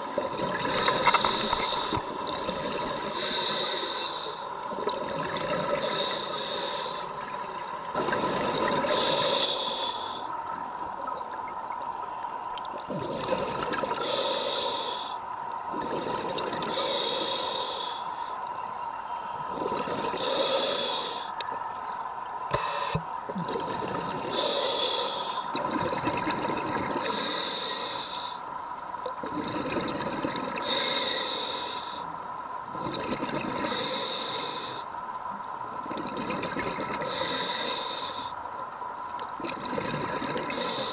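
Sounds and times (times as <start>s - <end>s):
exhaled air bubbling: 0.0s - 9.5s, 12.6s - 14.8s, 15.6s - 17.5s, 19.4s - 20.8s, 22.8s - 28.0s, 29.0s - 32.0s, 32.6s - 34.8s, 35.7s - 38.2s, 39.2s - 40.9s
regulator inhalation hiss: 0.6s - 2.2s, 3.1s - 4.7s, 5.8s - 7.2s, 8.9s - 10.4s, 14.0s - 15.2s, 16.7s - 18.4s, 20.2s - 21.3s, 22.5s - 23.0s, 24.3s - 25.5s, 27.0s - 28.5s, 30.6s - 32.1s, 33.6s - 34.9s, 37.0s - 38.4s, 40.5s - 40.9s.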